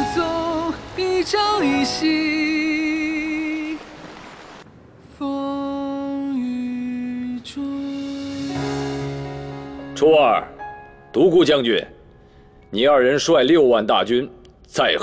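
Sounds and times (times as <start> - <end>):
person singing ballad: 0.0 - 3.9, 5.0 - 9.8.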